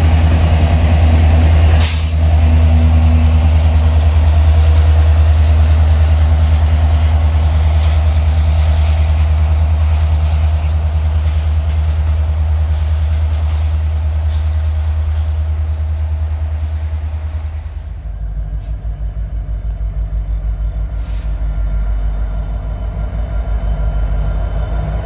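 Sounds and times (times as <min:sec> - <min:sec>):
diesel locomotive engine rumble: 0:00.0 - 0:25.0
short air hiss: 0:01.8 - 0:02.2, 0:21.0 - 0:21.5.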